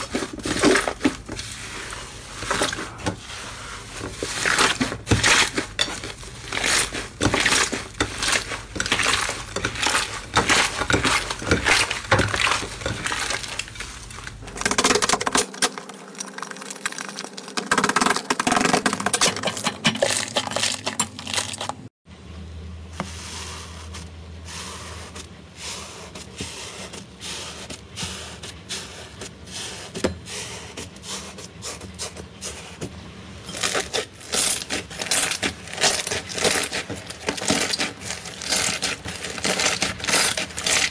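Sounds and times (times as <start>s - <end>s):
low steady hum: 0.0s - 40.9s
slime crackling and popping: 33.6s - 40.9s.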